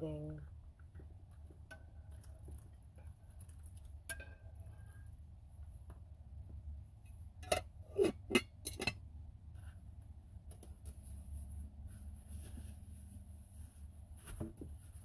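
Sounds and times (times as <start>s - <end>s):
low steady hum: 0.0s - 15.0s
tableware clinking and knocking: 7.4s - 9.0s.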